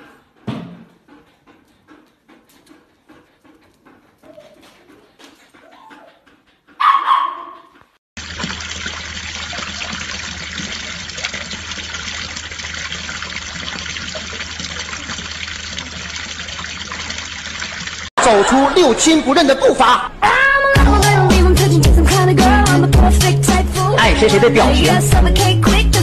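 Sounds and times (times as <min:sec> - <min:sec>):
dog barking: 0:06.8 - 0:07.8
water pouring into basin: 0:08.2 - 0:18.1.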